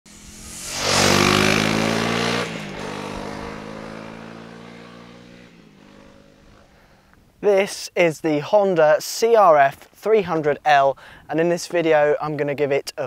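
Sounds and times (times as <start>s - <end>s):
motorcycle engine running: 0.1s - 6.8s.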